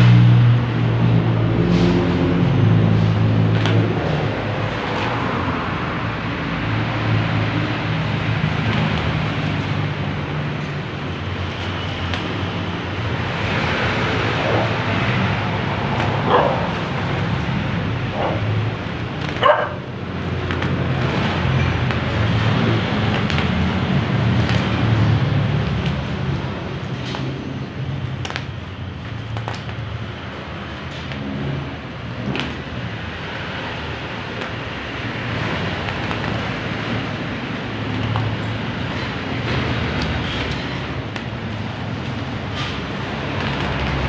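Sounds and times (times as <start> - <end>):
dog barking: 16.2 - 16.7, 18.1 - 18.5, 19.4 - 19.9.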